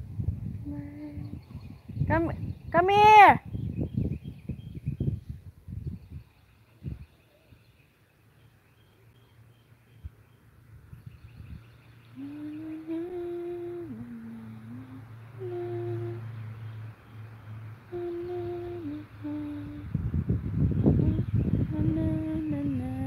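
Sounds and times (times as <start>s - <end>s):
wind buffeting microphone: 0.0s - 7.8s, 10.0s - 12.6s, 17.9s - 23.0s
person humming a slow tune: 0.6s - 1.7s, 12.0s - 16.8s, 17.8s - 20.1s, 20.9s - 23.0s.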